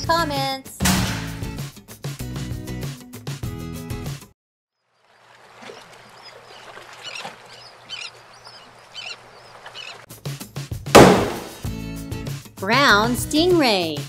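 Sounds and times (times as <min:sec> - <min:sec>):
background music: 0:00.0 - 0:04.3, 0:10.1 - 0:14.0
loud splash-like burst: 0:11.0 - 0:11.6.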